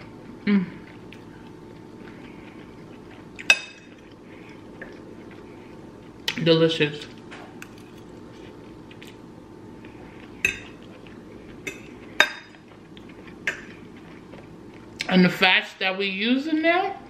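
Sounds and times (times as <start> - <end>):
faint steady hum: 0.0 - 17.0
fork clinking on ceramic plate: 10.4 - 10.8.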